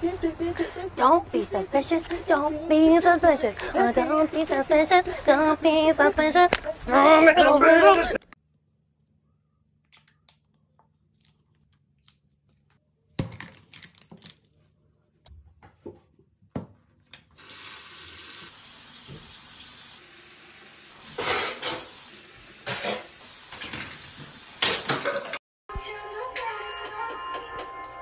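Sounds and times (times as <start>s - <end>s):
faucet water running into sink: 17.4s - 25.3s.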